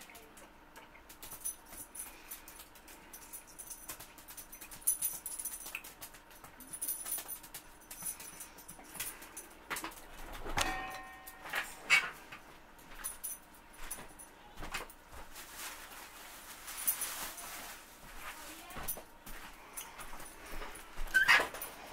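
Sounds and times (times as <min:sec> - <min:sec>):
small clicks and rustles: 0:00.0 - 0:10.6.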